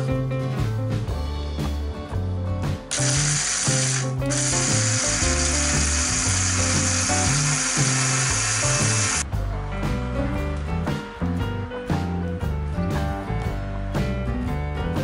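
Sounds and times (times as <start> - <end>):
background music: 0.0 - 15.0
blender motor grinding: 2.9 - 9.2.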